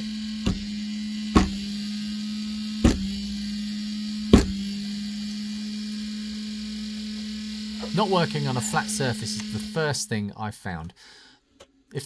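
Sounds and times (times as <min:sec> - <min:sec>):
fan buzzing hum: 0:00.0 - 0:10.1
knocks on metal unit: 0:01.4 - 0:01.6, 0:02.8 - 0:03.2, 0:04.3 - 0:04.7.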